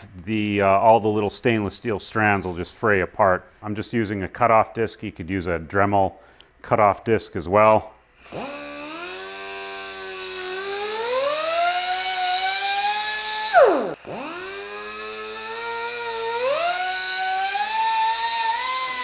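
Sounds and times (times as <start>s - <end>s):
rotary tool cutting metal hose: 8.2s - 19.0s.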